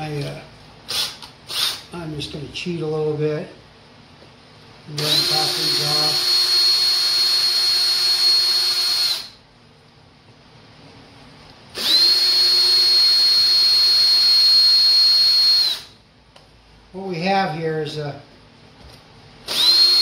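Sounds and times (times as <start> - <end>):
cordless drill motor whining: 5.0 - 9.4, 11.8 - 15.9, 19.5 - 20.0.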